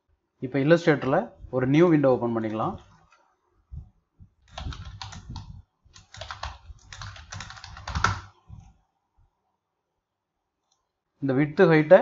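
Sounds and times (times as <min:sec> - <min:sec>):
computer keyboard typing: 0:04.4 - 0:08.4.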